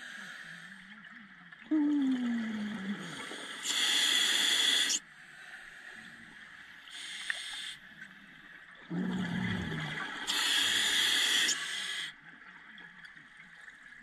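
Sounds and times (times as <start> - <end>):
regulator inhalation hiss: 3.4 - 5.0, 6.9 - 7.8, 10.3 - 12.1
exhaled bubbles rushing: 8.9 - 10.3.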